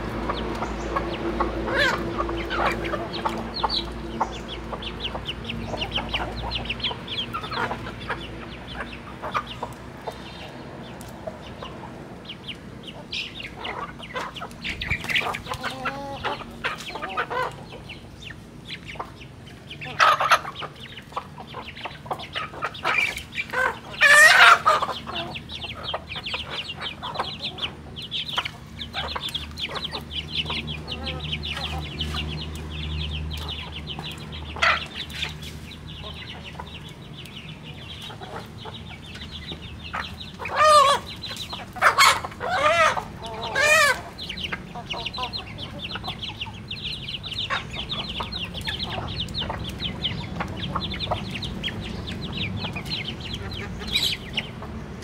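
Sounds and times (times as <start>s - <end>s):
chickens clucking: 0.0s - 55.0s
chicken squawking: 13.0s - 17.9s, 19.8s - 32.3s, 39.9s - 51.5s.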